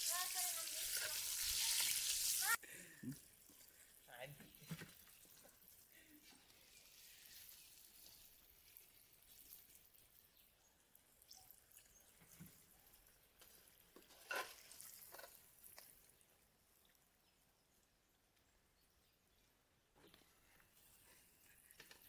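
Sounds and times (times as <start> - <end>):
oil sizzling in a pan: 0.0 - 2.6, 4.9 - 10.2.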